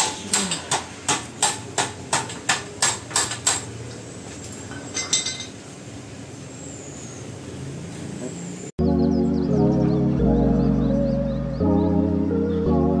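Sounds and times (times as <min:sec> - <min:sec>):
hammer striking metal: 0:00.0 - 0:03.7.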